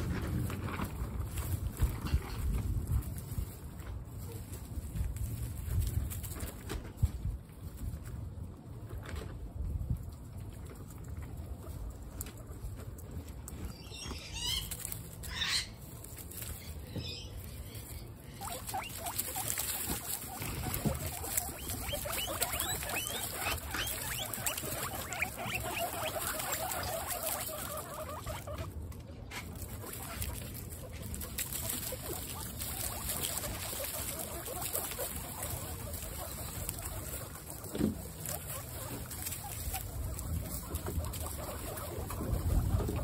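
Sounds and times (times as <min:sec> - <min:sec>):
guinea pigs squeaking: 0:00.0 - 0:43.0
shuffling through straw: 0:00.0 - 0:43.0.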